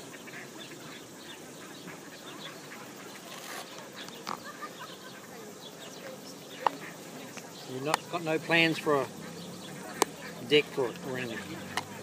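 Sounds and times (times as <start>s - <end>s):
ducks and birds calling: 0.0s - 12.0s.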